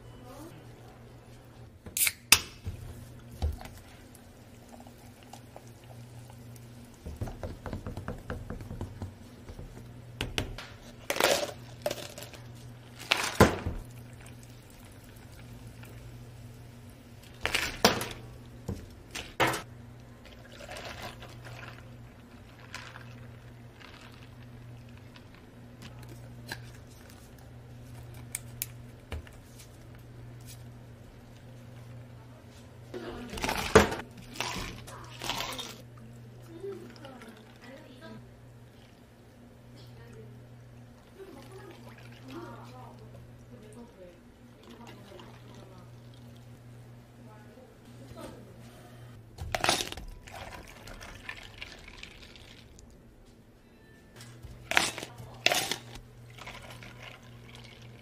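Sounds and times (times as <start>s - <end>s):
steady low hum: 0.0s - 58.0s
plastic cups on steel counter: 0.4s - 16.2s, 17.2s - 39.0s, 40.9s - 46.6s, 48.0s - 53.0s, 54.2s - 58.0s
ice clattering: 49.4s - 52.8s
soda pouring into cup: 49.7s - 52.8s, 56.3s - 58.0s.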